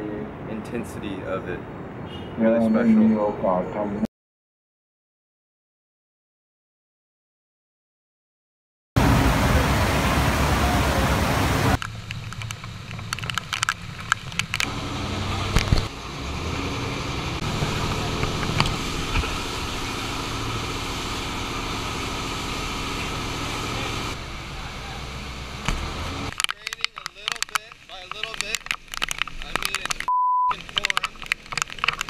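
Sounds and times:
wind: 0.0 - 4.1, 9.0 - 32.0
heavy rain: 9.0 - 13.9, 14.6 - 26.5
boat engine running: 9.0 - 26.3
knocks and clatters: 11.8 - 14.7, 25.6 - 32.0.

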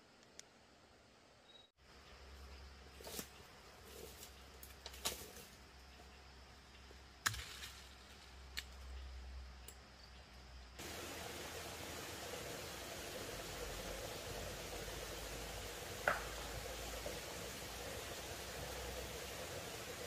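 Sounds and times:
steady loud hiss: 10.6 - 20.0.

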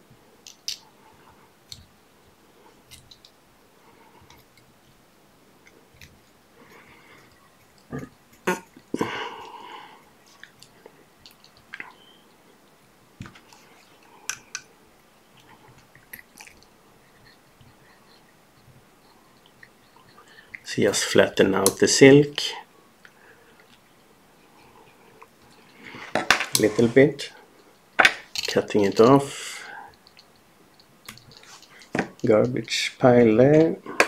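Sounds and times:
faint tool clicks and rustles: 10.2 - 14.7, 23.0 - 32.8.

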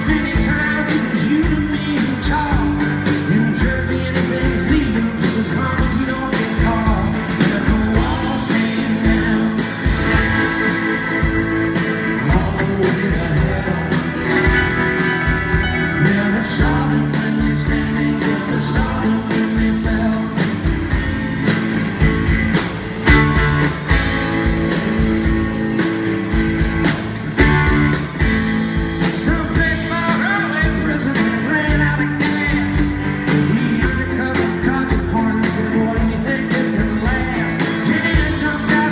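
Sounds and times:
man singing lead vocal: 0.0 - 15.0, 15.6 - 21.1, 29.0 - 38.9
rock band playing: 0.0 - 38.9.

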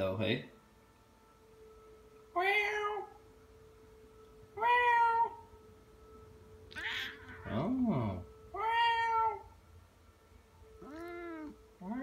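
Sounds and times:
cat meowing: 2.4 - 3.2, 4.6 - 5.4, 6.7 - 7.6, 8.5 - 9.6, 10.8 - 12.0.

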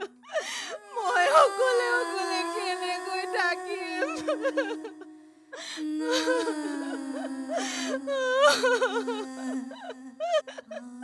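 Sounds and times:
woman wailing in grief: 0.7 - 5.2, 5.8 - 10.8.

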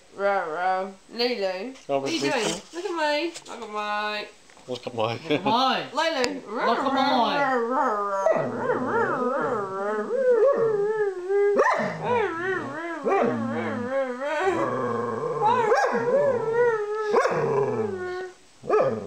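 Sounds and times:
dog howling: 6.5 - 19.0
person howling: 6.6 - 18.4.

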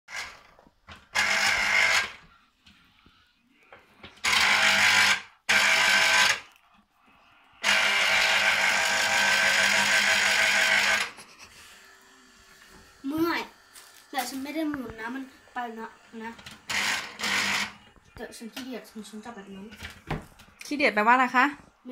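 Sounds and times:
electric juicer motor: 0.1 - 2.3, 4.0 - 6.6, 7.6 - 17.9.

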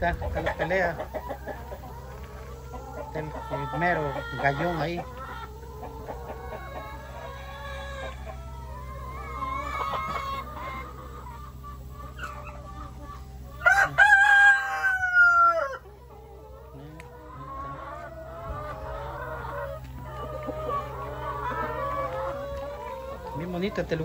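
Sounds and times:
hens clucking: 0.0 - 24.0
rooster crowing: 13.6 - 15.9.

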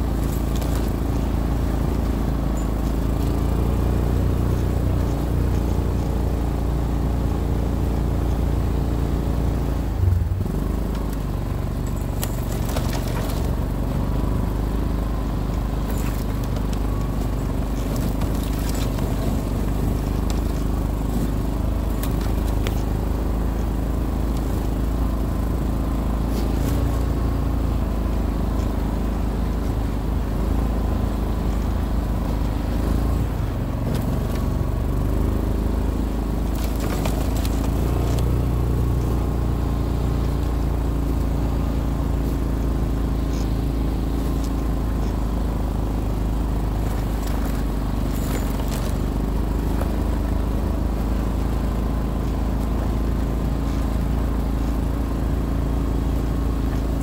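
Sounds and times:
atv engine running: 0.0 - 57.0
scraping crackles: 11.1 - 14.1, 15.6 - 23.0, 36.4 - 39.2.

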